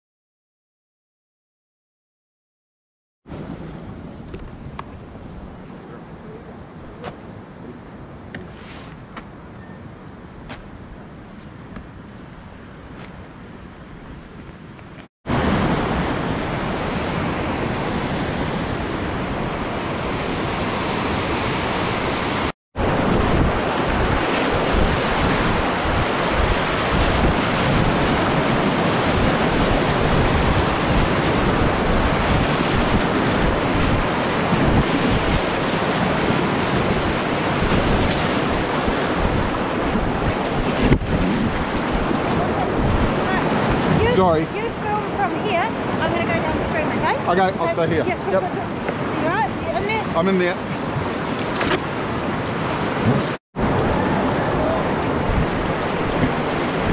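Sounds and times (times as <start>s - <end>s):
wind buffeting microphone: 3.3s - 56.9s
whitewater rapids rushing: 41.6s - 56.9s.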